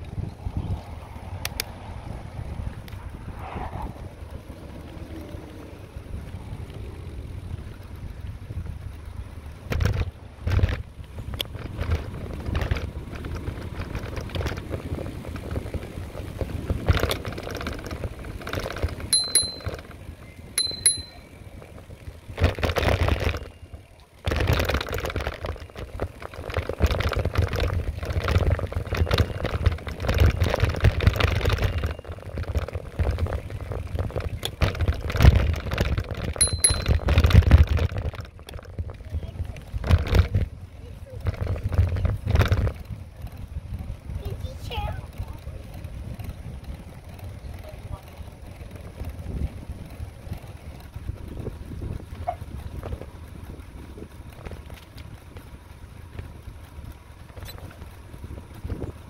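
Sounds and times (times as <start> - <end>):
bicycle clicks and rattles: 0.0 - 3.2, 3.9 - 59.0
bicycle tyre rumble: 0.0 - 59.0
wind buffeting microphone: 0.0 - 59.0
short high pings: 19.1 - 19.8, 20.6 - 21.3, 36.4 - 37.1.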